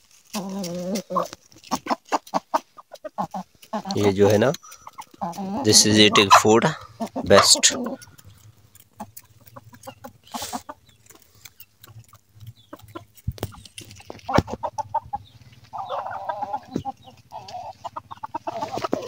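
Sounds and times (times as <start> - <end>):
beaks pecking at grain: 0.0 - 19.0
hens clucking: 0.0 - 19.0.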